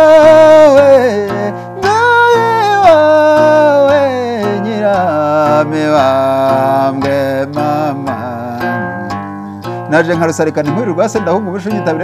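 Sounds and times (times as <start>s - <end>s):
man singing long notes: 0.0s - 9.1s.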